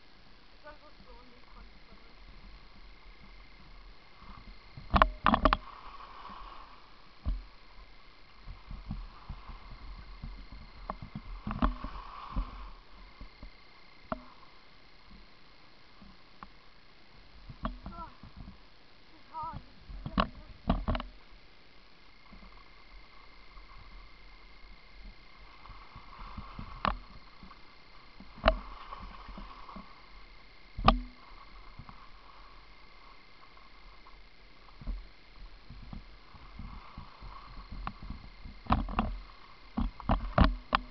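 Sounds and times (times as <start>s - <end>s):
skis sliding over snow: 5.5s - 13.5s, 22.4s - 30.6s, 31.2s - 40.9s
camera knocks and scrapes: 20.0s - 21.1s
sharp knocks: 30.8s - 31.3s.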